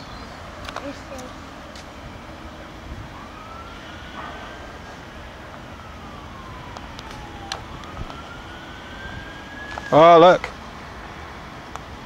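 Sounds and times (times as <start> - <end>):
siren wailing: 2.1 - 10.6.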